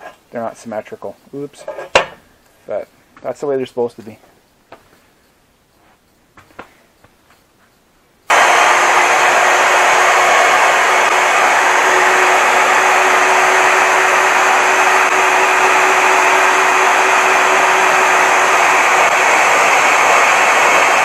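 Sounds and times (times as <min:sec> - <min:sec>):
band saw cutting metal: 0:08.3 - 0:21.0.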